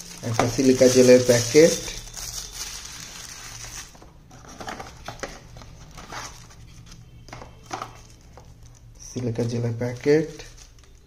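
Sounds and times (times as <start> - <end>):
paper and cardboard rustles: 0.0 - 8.5
plastic wrapper crinkling: 0.0 - 11.0.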